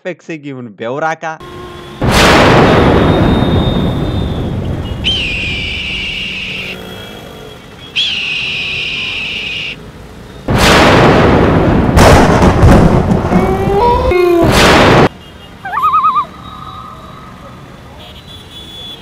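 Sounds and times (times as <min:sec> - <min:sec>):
sharp cracks: 0:02.0 - 0:03.3, 0:10.5 - 0:13.5, 0:14.4 - 0:15.1
explosion-like boom: 0:02.0 - 0:04.8, 0:10.5 - 0:13.4, 0:14.4 - 0:15.1
high whistle-like tones: 0:03.0 - 0:06.8, 0:07.9 - 0:09.8, 0:15.6 - 0:17.3.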